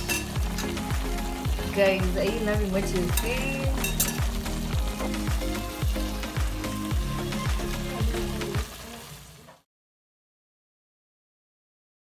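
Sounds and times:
music with deep drum beat: 0.0s - 8.8s
sauce sizzling in a pot: 0.0s - 9.7s.

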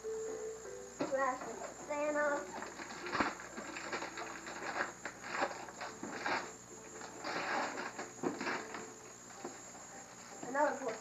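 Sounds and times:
wrapping paper rustling and tearing: 2.4s - 8.8s.

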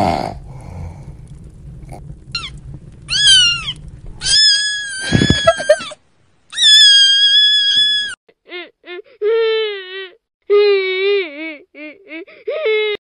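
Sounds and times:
low rumble: 0.3s - 6.5s.

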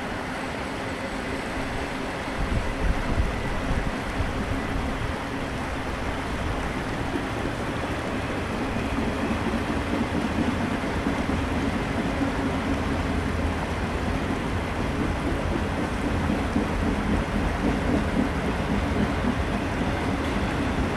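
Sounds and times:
train wheels rumbling on rail: 0.0s - 20.9s.

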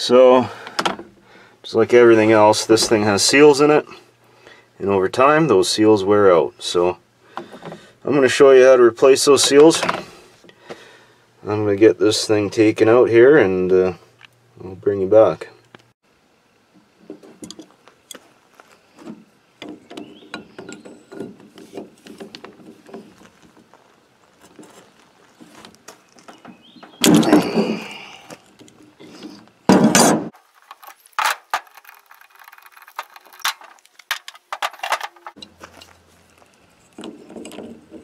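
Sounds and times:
wrenches clinking against metal: 19.8s - 21.6s, 30.0s - 35.9s.

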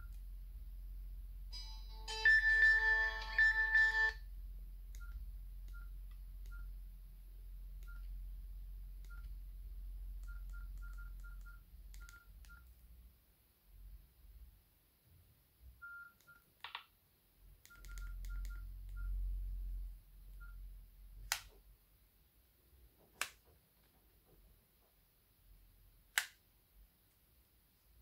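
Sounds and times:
low steady hum: 0.0s - 16.4s, 17.2s - 23.0s
phone keypad beeps: 1.6s - 4.2s, 10.2s - 12.7s, 17.7s - 19.2s
phone message tone melody: 1.6s - 4.2s.

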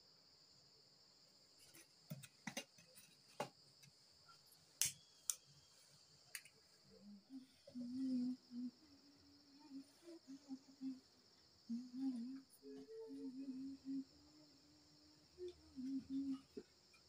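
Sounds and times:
crickets chirring: 0.0s - 17.0s.

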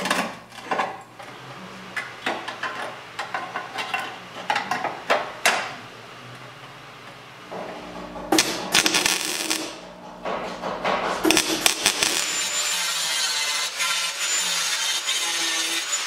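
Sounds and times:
welder crackling: 8.4s - 9.8s, 11.2s - 16.0s
metal knocks: 10.2s - 11.4s.

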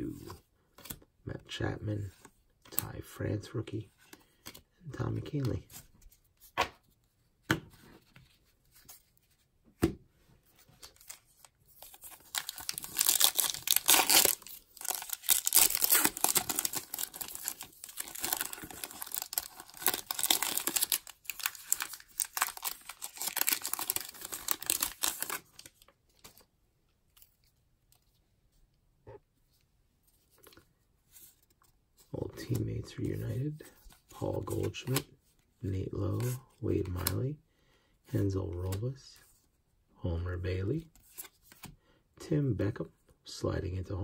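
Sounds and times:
foil wrapper tearing and crinkling: 11.9s - 25.4s.

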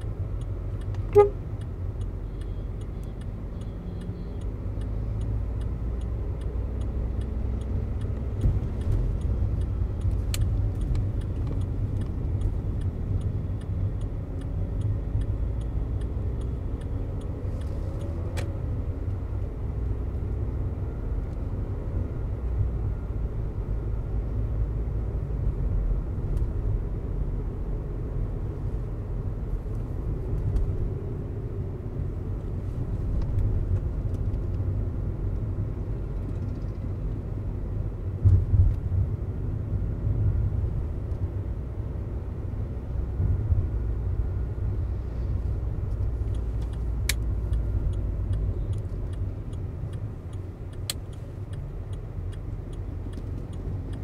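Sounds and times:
car engine and tyres rumble: 0.0s - 54.0s
car horn toot: 1.0s - 1.4s.

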